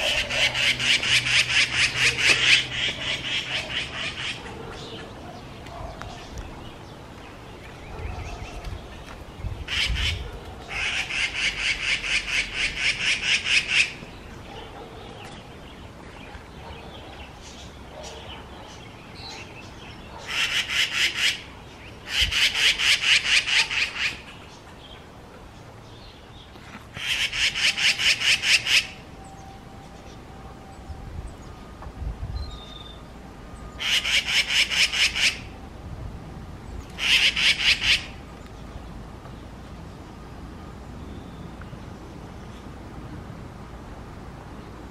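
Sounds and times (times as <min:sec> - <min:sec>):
magpies chattering: 0:00.0 - 0:06.7, 0:09.7 - 0:15.4, 0:16.6 - 0:24.6, 0:26.9 - 0:29.0, 0:33.8 - 0:35.5, 0:37.0 - 0:38.2.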